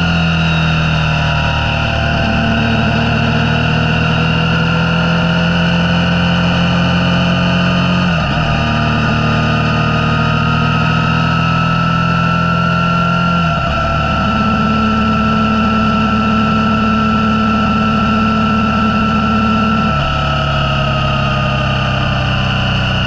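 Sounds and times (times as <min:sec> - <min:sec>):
motorcycle engine running: 0:00.0 - 0:23.0.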